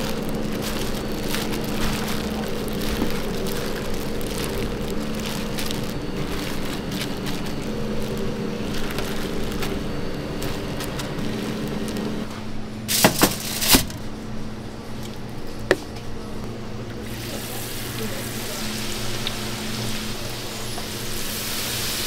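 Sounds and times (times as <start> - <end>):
flour rustling: 0.0 - 12.3
plastic gloves crinkling: 0.0 - 12.3, 12.9 - 14.1
steady hum: 0.0 - 22.0.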